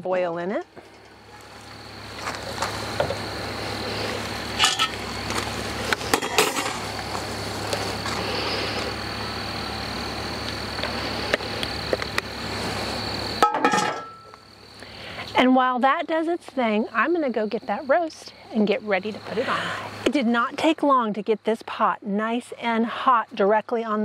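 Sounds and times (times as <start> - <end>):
steady outdoor hiss: 0.0 - 24.0
pot and lid clinking: 4.6 - 5.0, 13.4 - 14.3.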